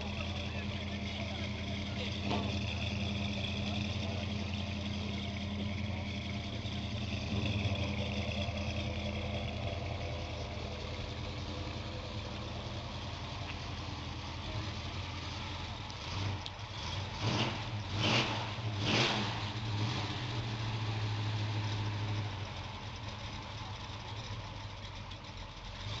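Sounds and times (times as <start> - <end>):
car engine idling and revving: 0.0 - 26.0.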